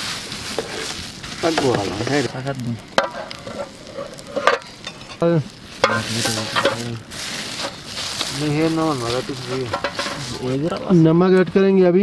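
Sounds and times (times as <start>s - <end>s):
sauce sizzling and bubbling in pot: 0.0s - 10.9s.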